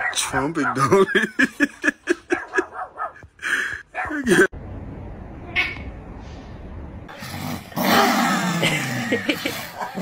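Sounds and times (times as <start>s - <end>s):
small dog growling and snarling: 7.1s - 10.0s.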